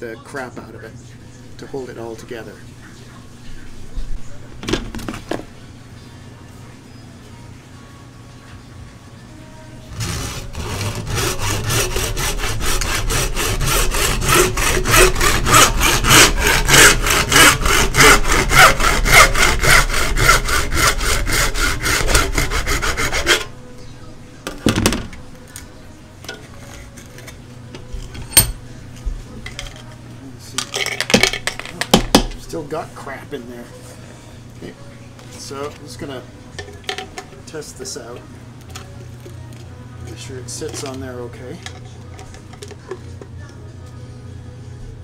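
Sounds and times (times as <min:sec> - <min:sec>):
hand saw cutting: 0:09.9 - 0:23.5.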